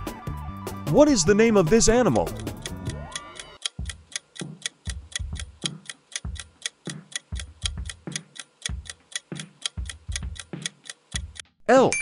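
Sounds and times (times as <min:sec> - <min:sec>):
clock-like timer ticks: 0:02.0 - 0:11.5.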